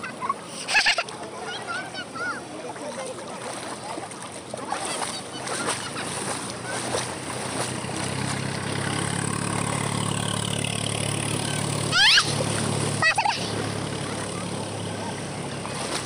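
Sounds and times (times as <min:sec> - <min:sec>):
tractor engine running: 0:04.4 - 0:16.0.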